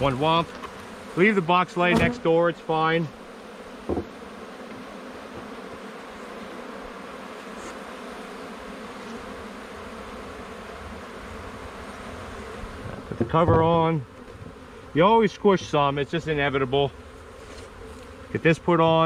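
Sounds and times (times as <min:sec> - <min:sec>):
bees buzzing: 0:00.0 - 0:19.0
short knock: 0:03.9 - 0:04.1.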